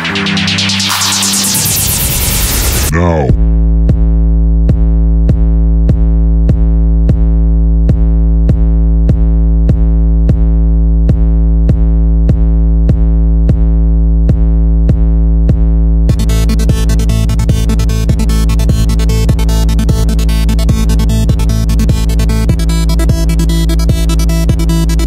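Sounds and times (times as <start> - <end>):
steady click beat: 0.0 - 2.9.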